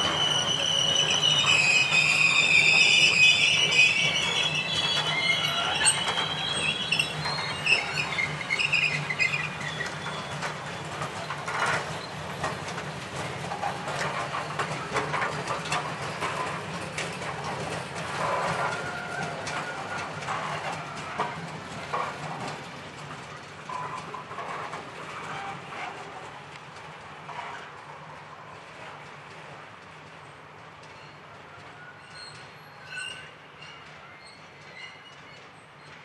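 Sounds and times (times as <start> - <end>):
wagons squeaking and creaking: 0.0 - 26.2
freight train wheels clattering: 0.0 - 36.0.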